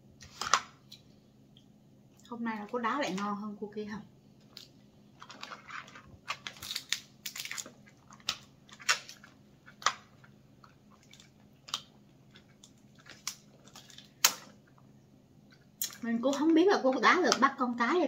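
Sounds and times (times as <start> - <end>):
crab shell cracking and crunching: 4.4 - 16.4.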